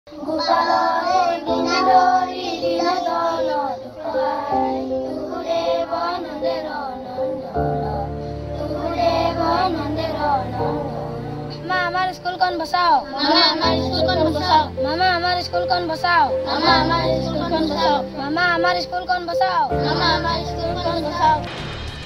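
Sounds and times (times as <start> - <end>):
children singing a prayer: 0.1 - 21.5
instrumental music with held notes: 0.1 - 22.0
deep bass note: 20.2 - 22.0.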